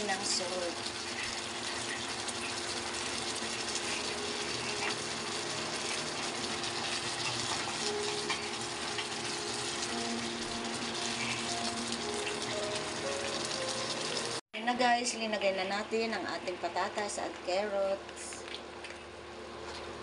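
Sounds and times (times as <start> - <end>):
sauce bubbling and sizzling in a pan: 0.0 - 14.4.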